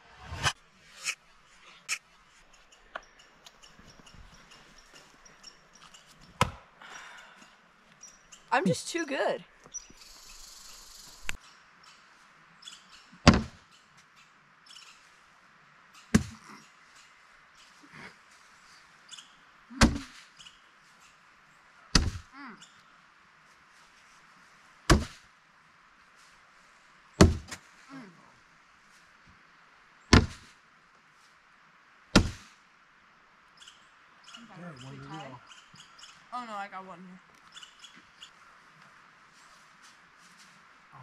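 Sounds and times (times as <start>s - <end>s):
bean bags thudding on boards: 27.2s - 27.6s, 32.2s - 32.4s.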